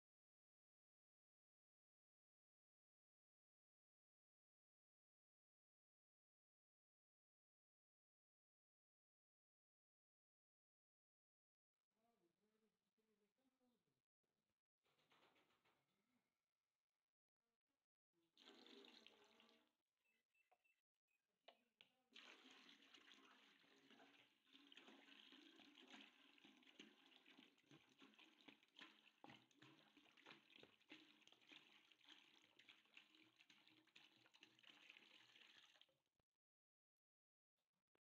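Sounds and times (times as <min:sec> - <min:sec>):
water pouring into metal bucket: 0:18.4 - 0:19.7, 0:22.1 - 0:35.9.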